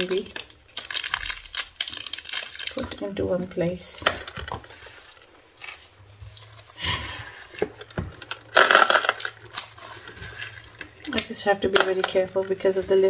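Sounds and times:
plastic beads clicking: 0.0s - 3.0s, 7.4s - 13.0s
plastic packaging crinkling: 0.0s - 13.0s.

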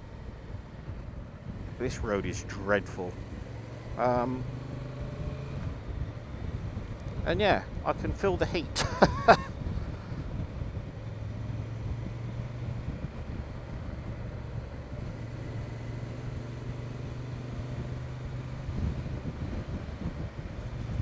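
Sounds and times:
motorcycle engine cruising: 0.0s - 21.0s
wind noise: 5.5s - 15.2s, 18.3s - 21.0s.

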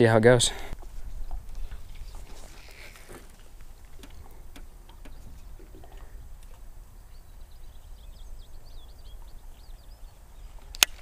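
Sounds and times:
wind rumble on microphone: 0.8s - 11.0s
bird twittering chirps: 3.9s - 11.0s.

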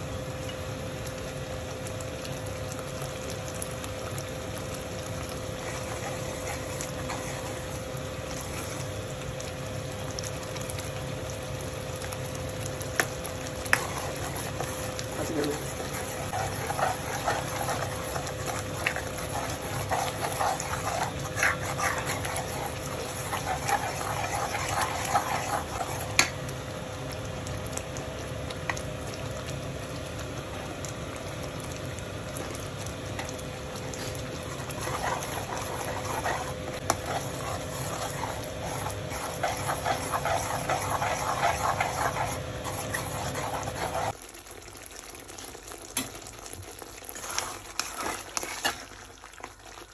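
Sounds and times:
steady hum: 0.0s - 44.2s
food bubbling: 0.0s - 49.9s
spoon scraping metal pot: 13.8s - 26.3s, 34.5s - 44.1s.

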